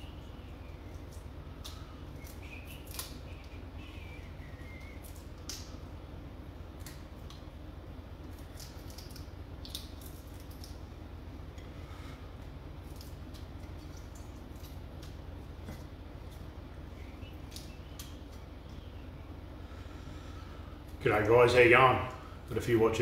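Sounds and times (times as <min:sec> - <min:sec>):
steady low hum: 0:00.0 - 0:23.0
prawn shells cracking: 0:00.9 - 0:04.1, 0:08.2 - 0:10.8.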